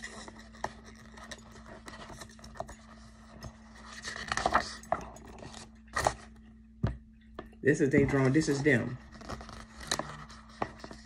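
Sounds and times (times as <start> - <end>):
small clicks and scratches: 0.0 - 6.3, 9.1 - 11.0
faint steady hum: 0.0 - 11.0.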